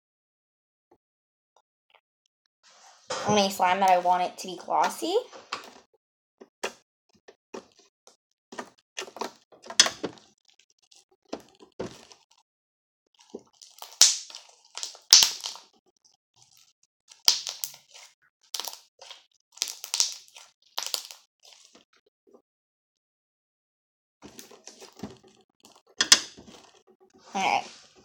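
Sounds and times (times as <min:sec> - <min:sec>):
slime squeezed crackling pops: 0:13.6 - 0:15.7, 0:17.1 - 0:21.3.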